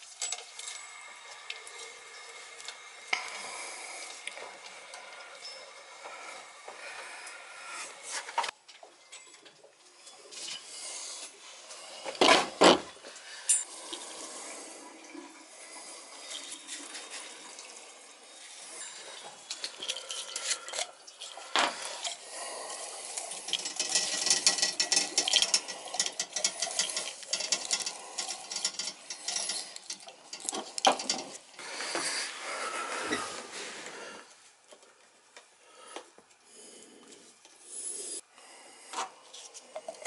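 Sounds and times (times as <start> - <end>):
rapid clicking and rustling: 23.5 - 31.5.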